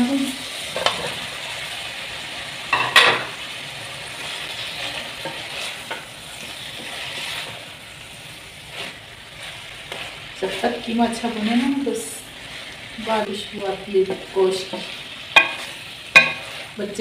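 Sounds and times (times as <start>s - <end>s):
meat sizzling in a pot: 0.0s - 17.0s
wooden spatula scraping a pan: 4.2s - 7.8s, 8.6s - 13.2s, 14.1s - 17.0s
spatula knocking: 14.7s - 16.6s.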